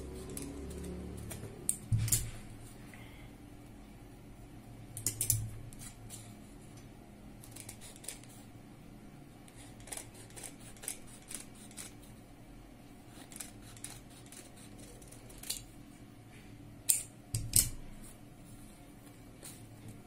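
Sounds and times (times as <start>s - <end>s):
shears snipping fabric: 9.6s - 12.0s, 13.1s - 15.6s.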